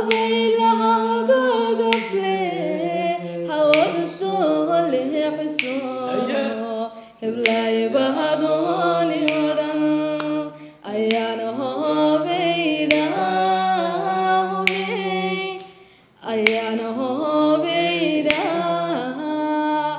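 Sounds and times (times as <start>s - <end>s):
person singing held lines: 6.0s - 6.8s.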